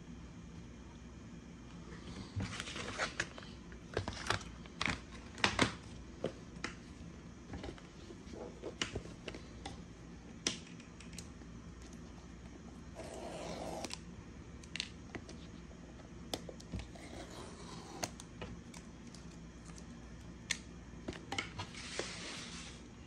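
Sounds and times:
paper and card rustling: 2.4 - 5.8.

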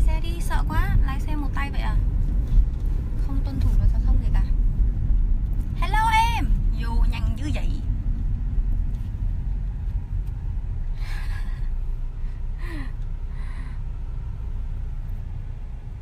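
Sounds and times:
car cabin rumble: 0.0 - 16.0
woman breathy laugh: 11.0 - 11.8.

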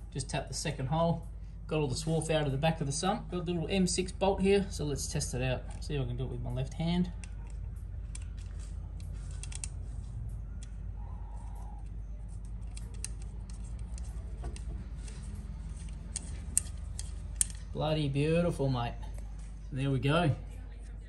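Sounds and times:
steady low hum: 0.0 - 21.0
metallic clicks of bolt and washers: 7.0 - 17.8.

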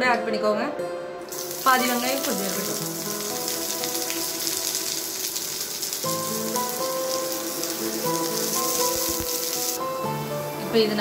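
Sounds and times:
soft background music: 0.0 - 11.0
onions sizzling in hot oil: 1.3 - 10.0.

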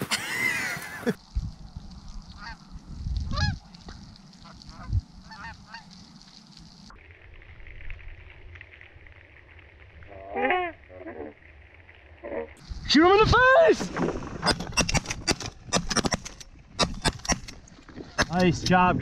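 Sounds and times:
geese honking: 4.4 - 6.0.

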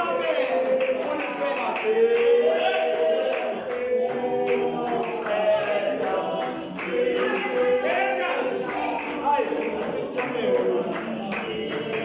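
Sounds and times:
choir singing in harmony: 0.0 - 12.0
hand clapping: 0.0 - 12.0.

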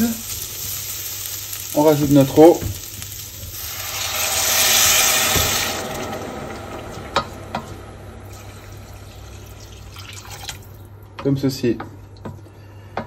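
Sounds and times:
loud sizzling hiss: 0.0 - 10.8
water pouring: 3.6 - 11.0.

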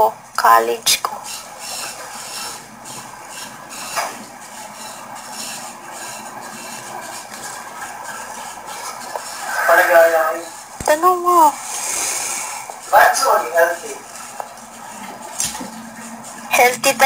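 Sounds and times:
steady hiss: 9.3 - 14.1.

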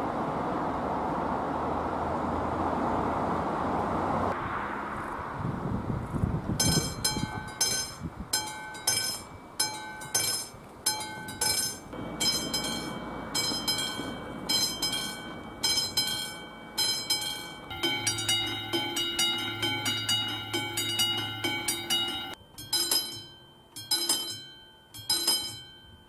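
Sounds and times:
level crossing warning bell: 6.6 - 26.0.

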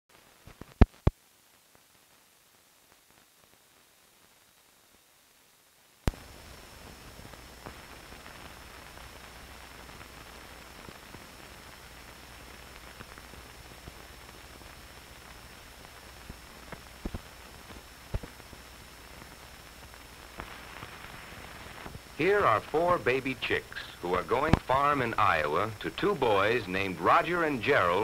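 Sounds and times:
film soundtrack hiss: 0.1 - 28.0
faint high whine: 0.2 - 28.0
clicks and crackles: 0.4 - 1.2, 6.0 - 22.2.

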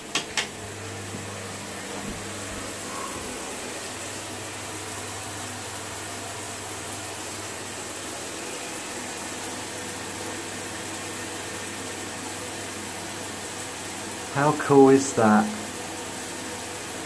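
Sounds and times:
shower water spraying: 0.0 - 17.0.

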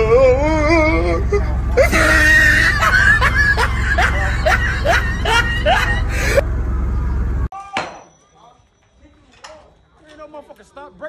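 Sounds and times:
car rumble: 0.0 - 7.5
person laughing: 0.6 - 6.4.

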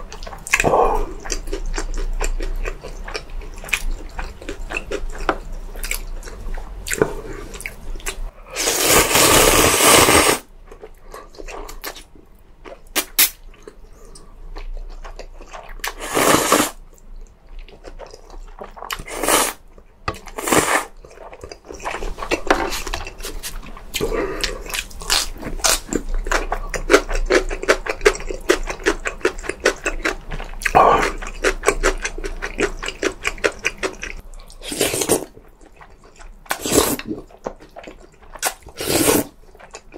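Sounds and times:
noodle slurping: 8.6 - 10.4, 15.8 - 16.8, 38.7 - 39.4
wet chewing clicks and smacks: 24.7 - 34.6, 39.4 - 39.9.

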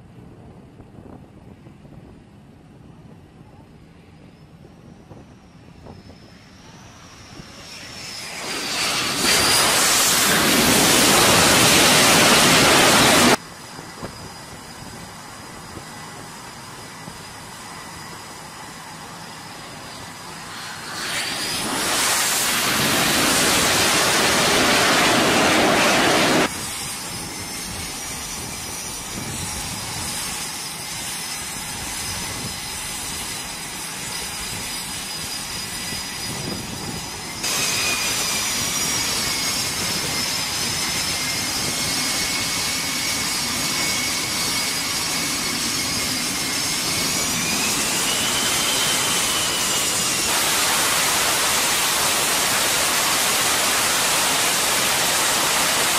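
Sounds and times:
jet engines whining: 3.7 - 55.9
jet roar: 4.2 - 55.9
jet engine spooling up: 4.7 - 55.9.

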